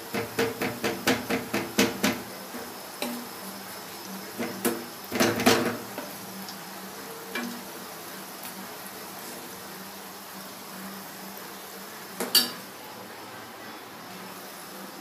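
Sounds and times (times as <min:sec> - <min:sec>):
metal spoon clinking in pot: 0:12.2 - 0:12.6
pot ringing: 0:12.3 - 0:12.6.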